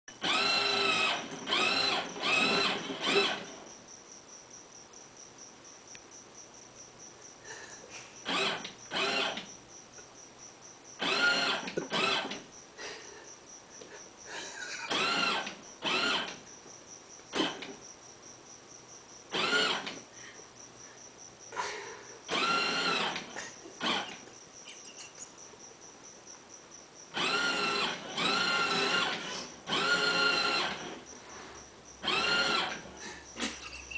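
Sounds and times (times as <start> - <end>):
toy train motor whining: 0.1 - 3.6, 8.2 - 9.5, 11.0 - 12.4, 14.8 - 16.4, 19.3 - 20.0, 22.3 - 24.3, 27.1 - 31.1, 32.0 - 33.9.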